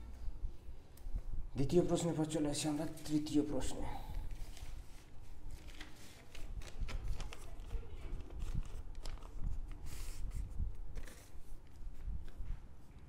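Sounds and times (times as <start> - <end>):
paper rustling and sliding: 4.3 - 13.0.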